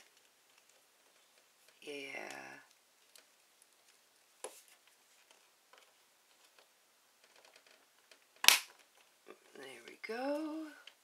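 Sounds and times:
plastic piece snapping into place: 8.4 - 8.8.

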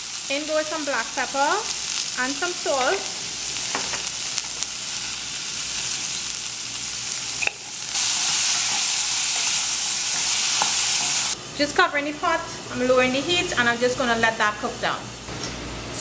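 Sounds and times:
beans sizzling in oil: 0.0 - 15.3
wooden spoon stirring: 8.0 - 11.3.

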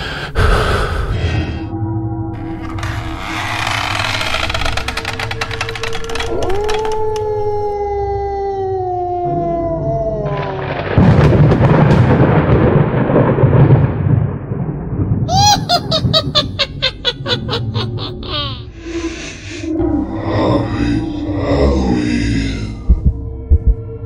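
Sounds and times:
long falling howl: 6.3 - 11.0
thunder rumble: 10.4 - 18.3.

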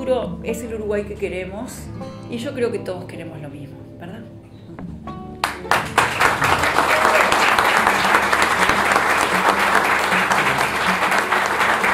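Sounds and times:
audience applauding: 5.4 - 11.9.

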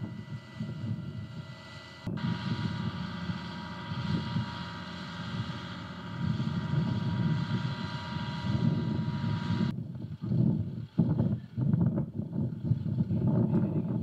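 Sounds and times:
faint steady whine: 0.0 - 14.0
truck engine rumbling: 0.0 - 14.0.

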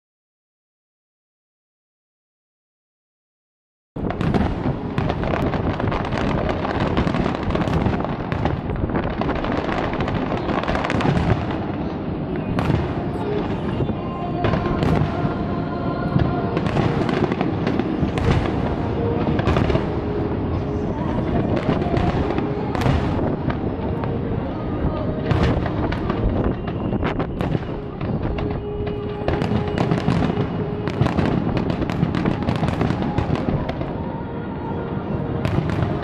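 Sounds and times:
fireworks bursting and crackling: 4.0 - 36.0
faint music: 4.1 - 36.0.

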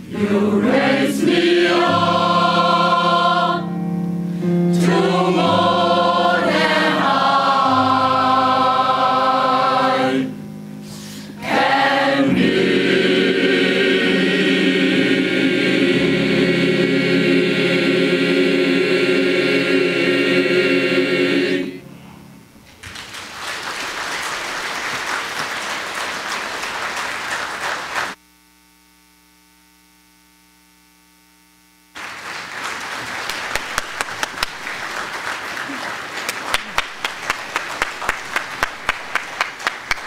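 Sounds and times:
mixed choir holding a chord: 0.0 - 22.6
faint hum: 0.0 - 40.0
audience applause: 22.7 - 28.2, 32.0 - 40.0.

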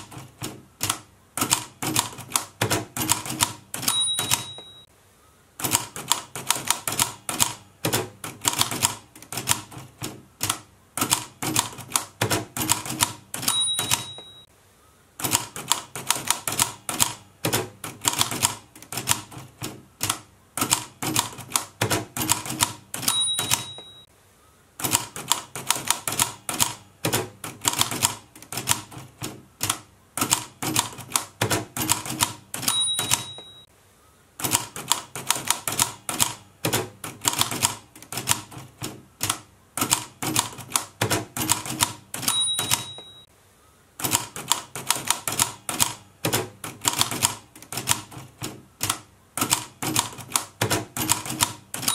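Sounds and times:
typewriter keystrokes clacking: 0.0 - 4.8, 5.6 - 14.3, 15.2 - 24.0, 24.8 - 33.7, 34.4 - 43.3, 44.0 - 51.9
typewriter bell ringing: 3.8 - 4.9, 13.4 - 14.5, 23.0 - 24.1, 32.6 - 33.7, 42.2 - 43.3.

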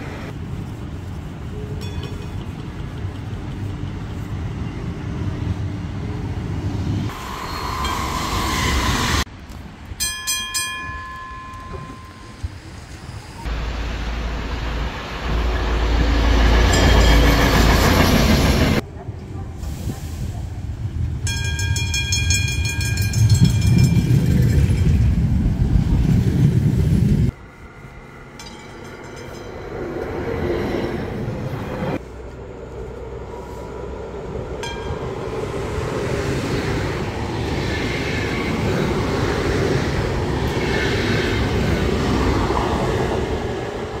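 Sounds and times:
train wheels rumbling: 0.0 - 44.0
high ringing warning signal: 10.0 - 12.6.

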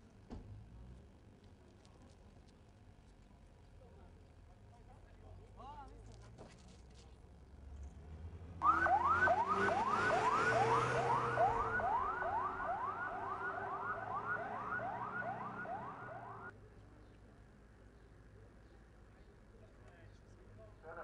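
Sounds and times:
vehicle driving past: 7.6 - 16.5
ambulance siren yelping: 8.6 - 16.5.

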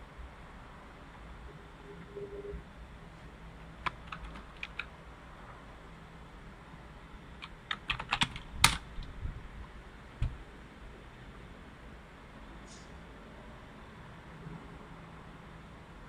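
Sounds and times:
computer keyboard typing: 3.8 - 4.9, 7.4 - 9.0.

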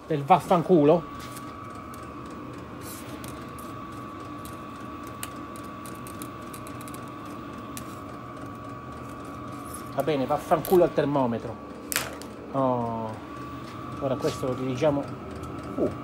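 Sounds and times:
heater blower hum with whine: 0.0 - 16.0.

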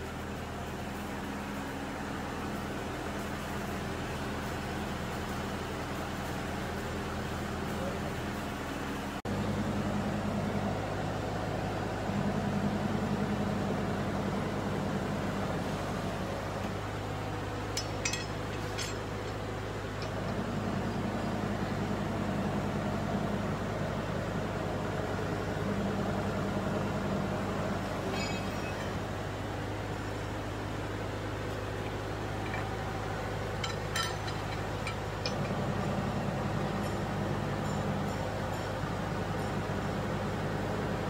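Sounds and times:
hydraulic press motor humming: 15.4 - 23.0.

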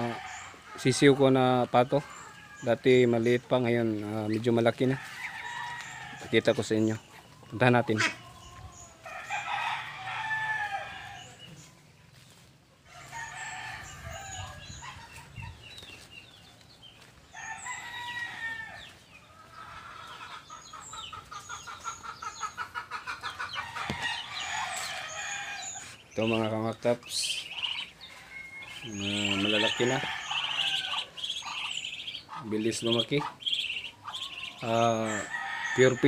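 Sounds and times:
roosters crowing: 0.0 - 12.2, 12.8 - 36.0
chickens clucking: 0.0 - 36.0
short repeated chicken calls: 27.3 - 32.5.

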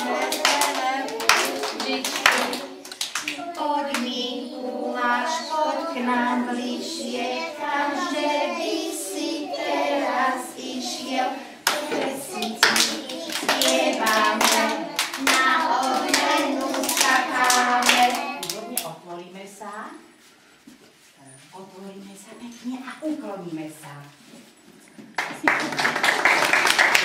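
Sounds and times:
hand claps: 0.0 - 3.4, 11.7 - 18.9, 25.2 - 27.0
children singing: 0.0 - 18.7.

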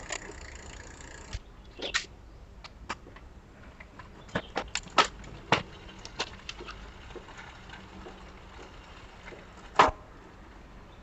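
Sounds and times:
bicycle chain clacking: 0.0 - 1.4, 4.8 - 9.7.

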